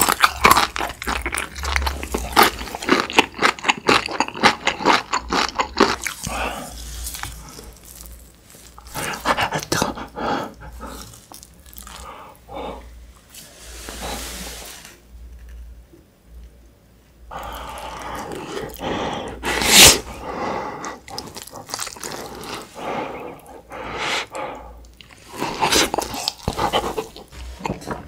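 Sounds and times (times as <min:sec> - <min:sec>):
loud slurp off spoon: 0:19.4 - 0:20.1
wet chewing with smacks: 0:20.8 - 0:23.5, 0:24.8 - 0:28.0.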